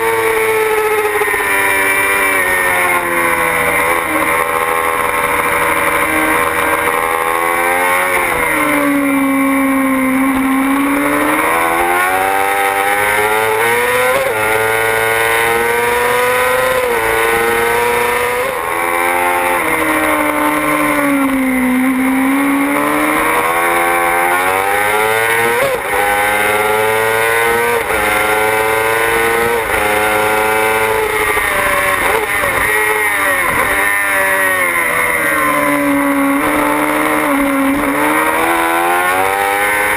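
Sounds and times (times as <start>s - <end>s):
motorcycle engine revving through gears: 0.0s - 39.9s.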